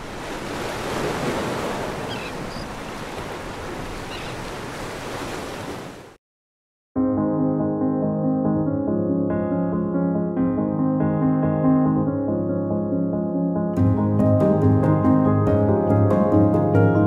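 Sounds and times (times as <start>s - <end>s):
waves washing onto beach: 0.0s - 6.2s
soft piano music: 7.0s - 17.0s.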